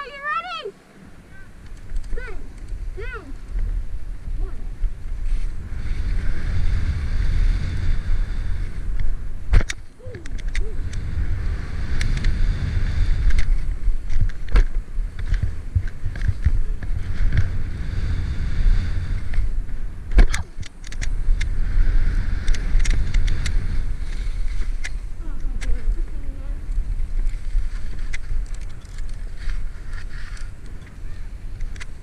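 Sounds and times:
wind rumbling on microphone: 0:00.0 - 0:32.0
skis scraping over snow: 0:02.2 - 0:09.5, 0:21.1 - 0:32.0.

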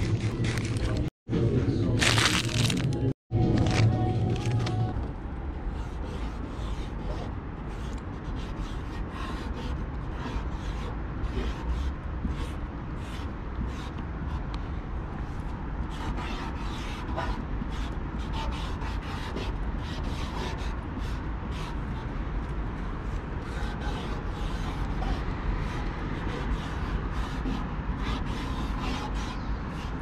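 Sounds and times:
marker scratching on metal: 0:05.7 - 0:14.5, 0:15.2 - 0:22.0, 0:23.0 - 0:30.0.

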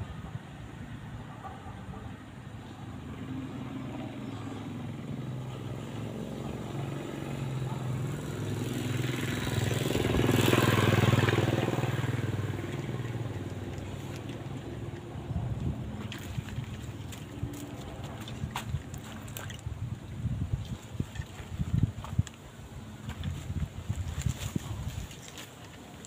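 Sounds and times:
motorcycle passing by: 0:00.0 - 0:25.7.

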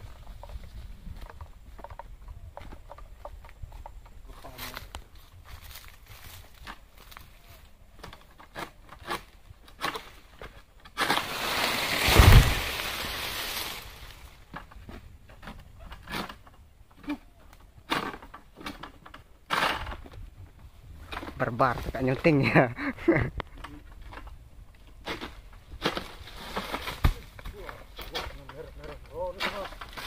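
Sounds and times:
leaves rustling: 0:04.2 - 0:07.9, 0:08.6 - 0:15.1, 0:25.0 - 0:30.0
frond falling swish: 0:11.0 - 0:14.2
heavy thud: 0:12.0 - 0:13.0.

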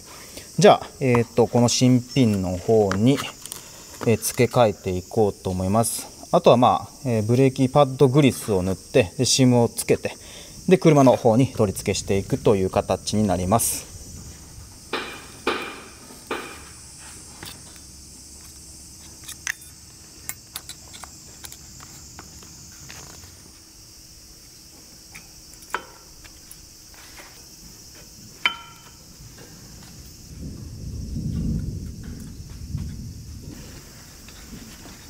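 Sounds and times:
steady high hiss: 0:00.0 - 0:35.0.

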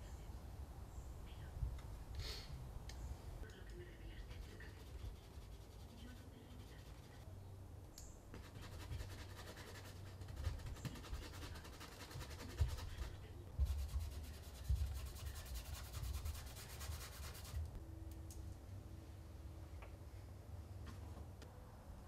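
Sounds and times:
paint brush scrubbing canvas: 0:04.2 - 0:07.2, 0:08.4 - 0:17.8.

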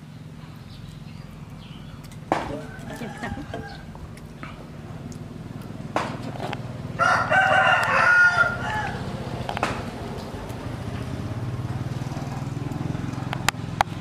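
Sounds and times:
steady low hum: 0:00.0 - 0:14.0
rooster crowing: 0:02.4 - 0:04.0, 0:06.9 - 0:09.3.

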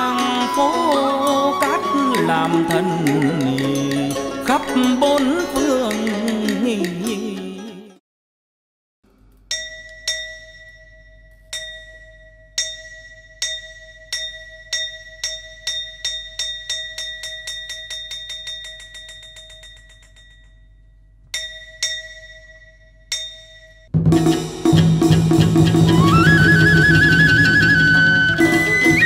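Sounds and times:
music: 0:00.0 - 0:08.0, 0:23.9 - 0:29.0
small metal bell struck: 0:09.5 - 0:23.9.

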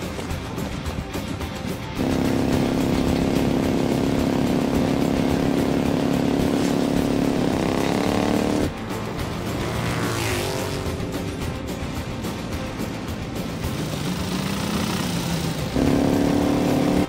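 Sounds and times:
background music: 0:00.0 - 0:17.0
motorcycle engines racing: 0:01.4 - 0:17.0
rough engine note with pitch sweep: 0:02.0 - 0:11.6, 0:13.6 - 0:17.0.

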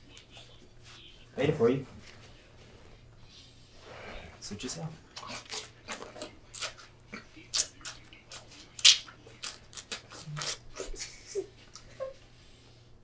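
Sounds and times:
faint steady hum: 0:00.0 - 0:13.0
person eating noisily: 0:05.0 - 0:11.9.

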